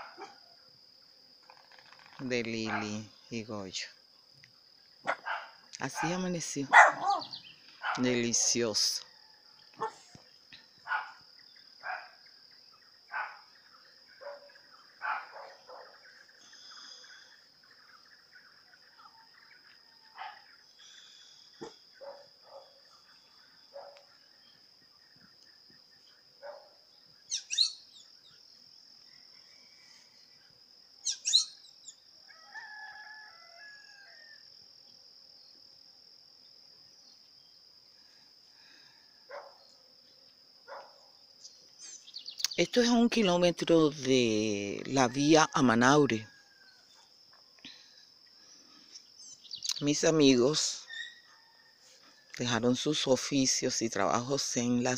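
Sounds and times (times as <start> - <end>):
high insect drone: 0.0 - 54.9
sharp high bird chirps: 6.6 - 7.7, 27.3 - 28.4, 31.0 - 32.0, 41.8 - 42.7, 50.8 - 51.3
short bird calls: 6.7 - 8.0, 20.2 - 23.1, 27.3 - 28.1, 31.0 - 32.0
distant rooster crowing: 32.2 - 34.5, 45.1 - 47.1, 50.8 - 52.4.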